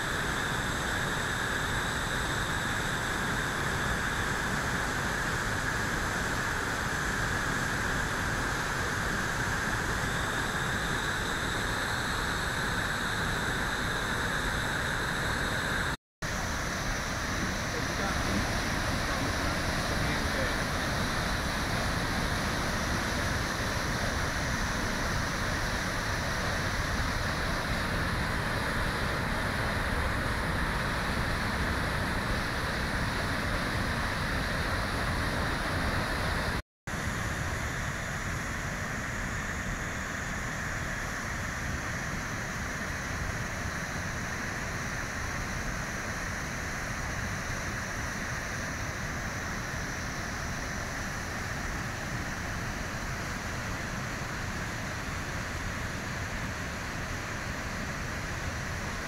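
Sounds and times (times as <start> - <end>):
waterfall rushing: 17.0 - 36.4.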